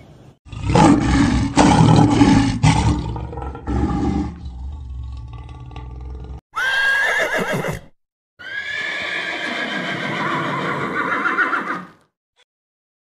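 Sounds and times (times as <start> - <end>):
horse whinnying: 6.5 - 12.0.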